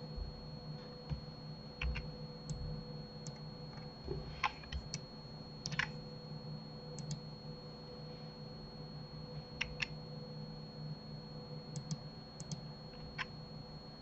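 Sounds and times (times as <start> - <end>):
faint electrical hum: 0.0 - 14.0
mouse and keyboard clicks: 5.6 - 5.9.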